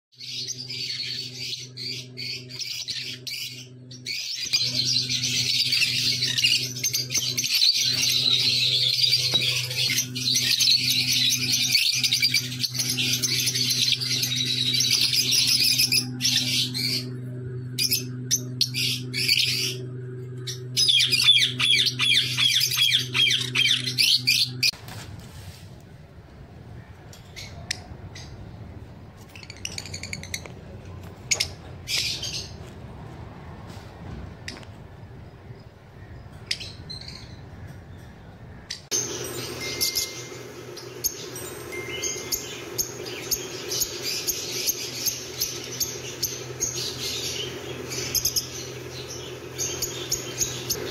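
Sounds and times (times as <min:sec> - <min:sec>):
lovebirds chattering and squawking: 0:00.2 - 0:17.2, 0:17.8 - 0:24.8, 0:34.4 - 0:50.9
steady low hum: 0:00.2 - 0:50.9.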